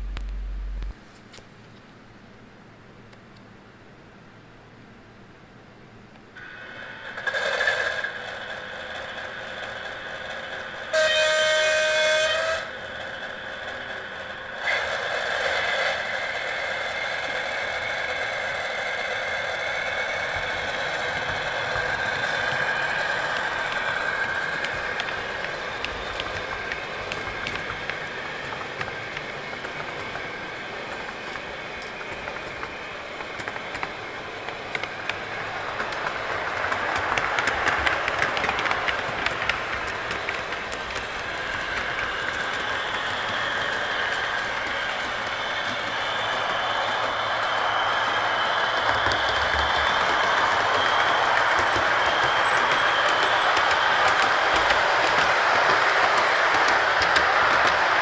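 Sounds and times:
model diesel engine sound: 0:00.0 - 0:01.0
locomotive horn blast: 0:10.9 - 0:12.7.

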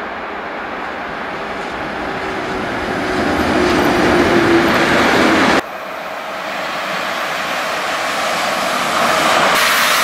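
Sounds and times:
locomotive hum: 0:00.0 - 0:10.0
train wheels rumbling on rail: 0:00.0 - 0:10.0.

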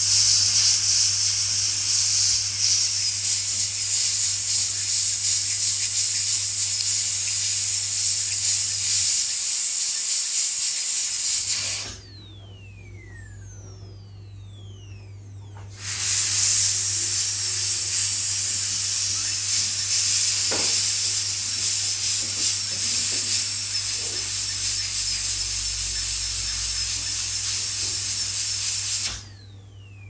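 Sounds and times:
dental drill high-pitched hiss: 0:00.0 - 0:13.6, 0:15.6 - 0:29.6.

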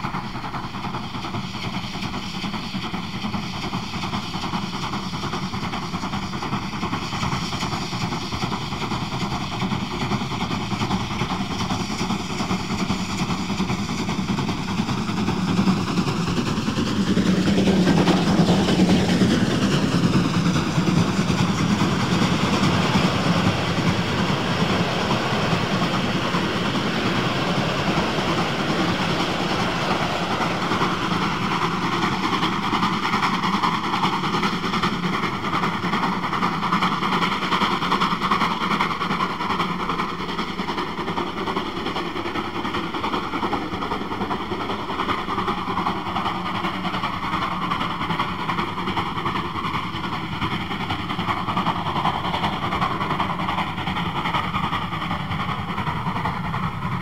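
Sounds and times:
steam locomotive climbing: 0:00.0 - 0:57.0
train cars rolling past: 0:16.3 - 0:33.6.

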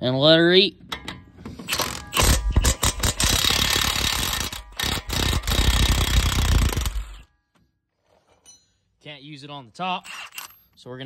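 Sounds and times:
impact wrench hammering: 0:00.9 - 0:07.3.

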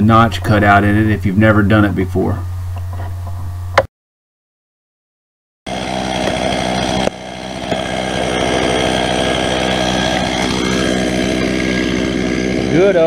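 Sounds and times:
chainsaw running: 0:05.7 - 0:13.0.

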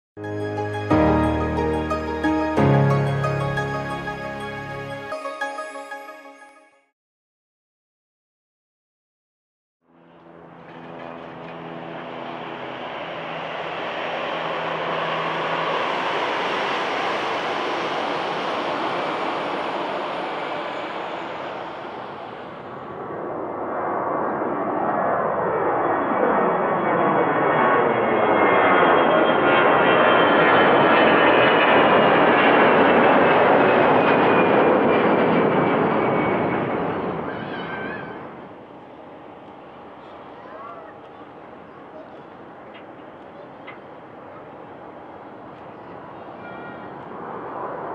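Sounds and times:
jet engines humming: 0:09.9 - 0:47.9.

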